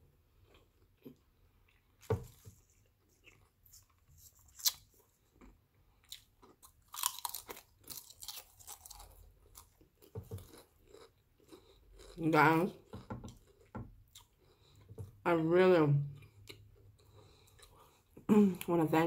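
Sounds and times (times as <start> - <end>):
chips crunching and chewing: 0.3 - 14.9.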